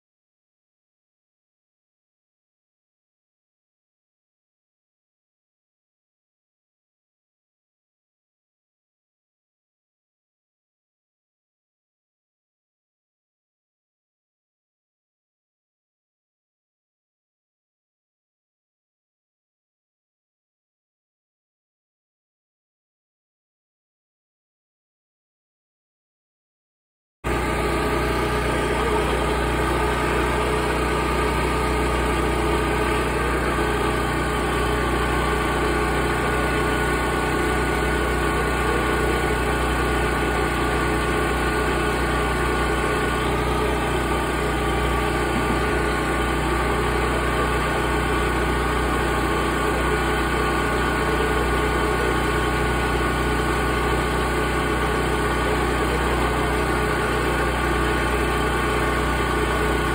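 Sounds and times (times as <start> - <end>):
steady engine drone: 27.3 - 59.9.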